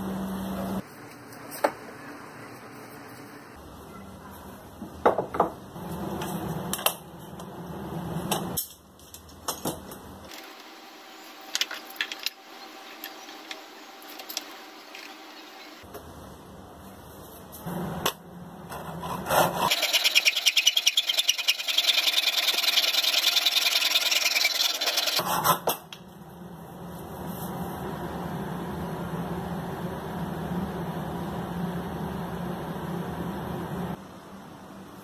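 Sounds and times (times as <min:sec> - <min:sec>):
pull saw cutting wood: 0:19.3 - 0:25.2.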